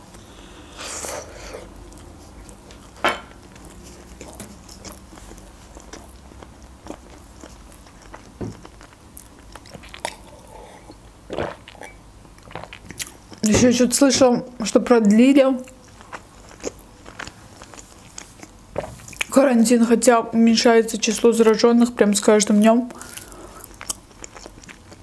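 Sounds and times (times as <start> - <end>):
biting and chewing food: 1.6 - 10.5, 15.7 - 19.3, 23.0 - 25.0
person gulping juice: 9.6 - 13.0.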